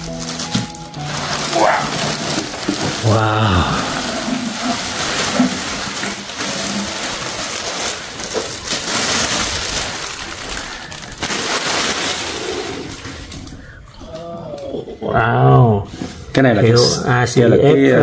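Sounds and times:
cardboard box rustling and crackling: 0.0s - 13.5s.

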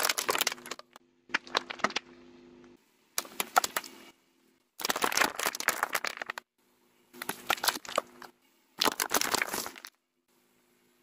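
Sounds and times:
tyre crunching small objects: 0.0s - 2.0s, 4.8s - 6.4s, 7.2s - 10.0s.

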